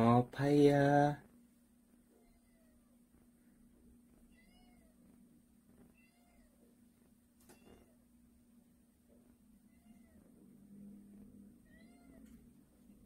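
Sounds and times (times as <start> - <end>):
faint steady hum: 0.0 - 13.0
cat meowing faintly: 2.1 - 3.1, 4.2 - 5.2, 5.8 - 6.8, 7.4 - 8.1, 9.6 - 10.6, 11.6 - 12.6.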